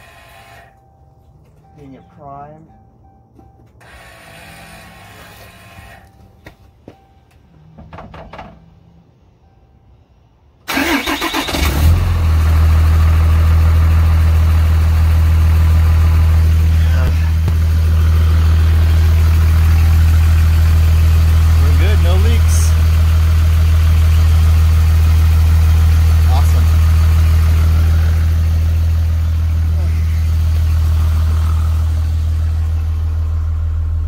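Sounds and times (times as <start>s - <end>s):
diesel engine cranking and idling: 0.0s - 34.0s.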